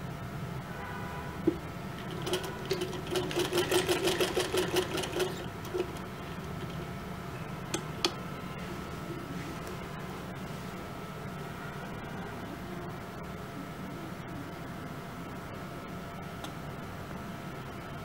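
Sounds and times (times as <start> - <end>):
sewing machine stitching: 2.0 - 6.8.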